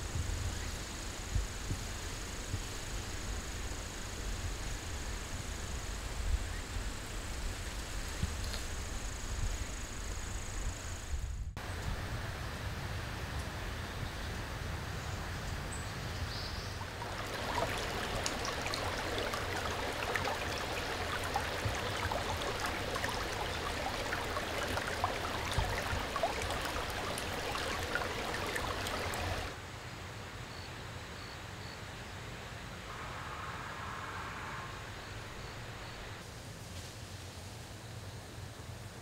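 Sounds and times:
faint outdoor background: 0:00.0 - 0:39.0
stream babbling over stones: 0:16.8 - 0:29.6.

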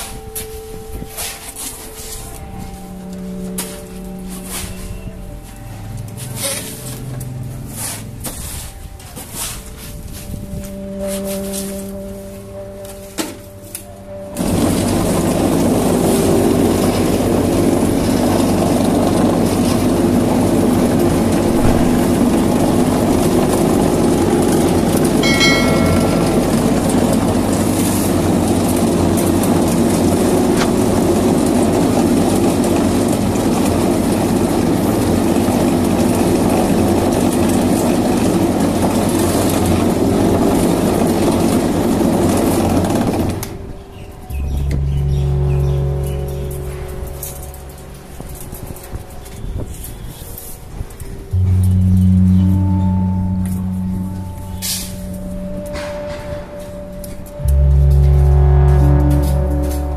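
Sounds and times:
vibrating table mechanical hum: 0:14.0 - 0:59.9.

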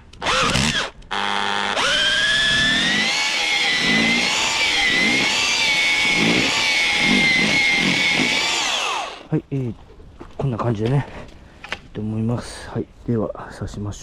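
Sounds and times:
power drill motor under load: 0:00.2 - 0:09.3.

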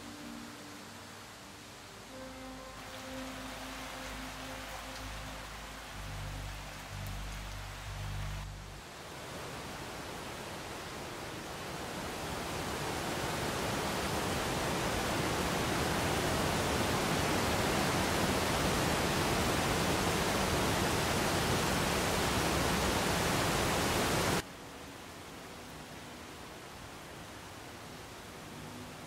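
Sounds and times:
steady rushing noise: 0:00.0 - 0:17.5
faint hiss: 0:00.0 - 0:29.0.

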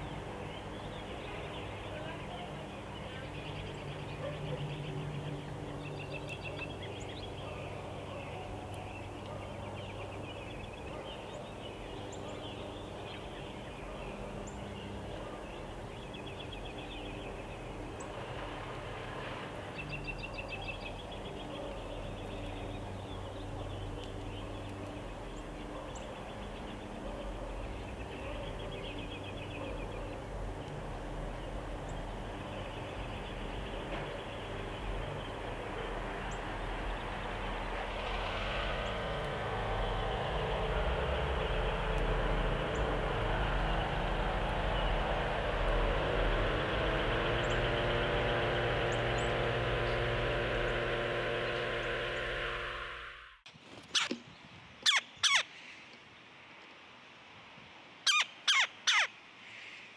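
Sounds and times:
vehicle passing: 0:00.0 - 0:53.4
distant birds singing: 0:00.0 - 0:56.5, 0:58.0 - 0:59.9
low traffic rumble: 0:00.0 - 0:59.8.

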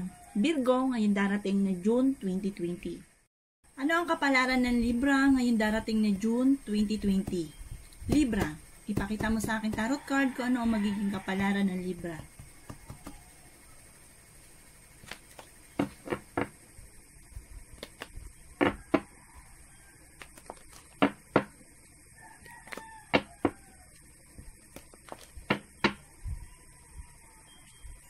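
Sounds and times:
cards shuffling clicks: 0:15.0 - 0:16.2, 0:17.7 - 0:18.2, 0:20.2 - 0:21.0, 0:24.7 - 0:25.4.

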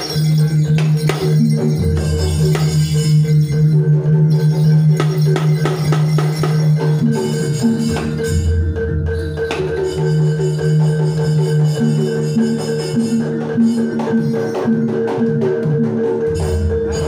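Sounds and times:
metallic percussion hits: 0:00.0 - 0:17.0
hand drum strokes: 0:05.0 - 0:17.0.

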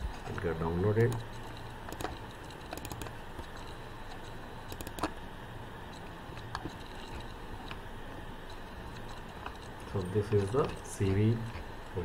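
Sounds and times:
low room hum: 0:00.0 - 0:12.0
computer mouse clicks: 0:00.4 - 0:05.2.

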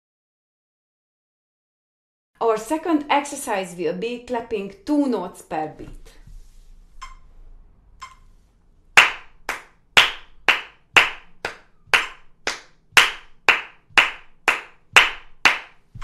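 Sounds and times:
electronic metronome beeping: 0:07.0 - 0:07.4, 0:08.0 - 0:08.3
hand claps: 0:09.0 - 0:16.0.

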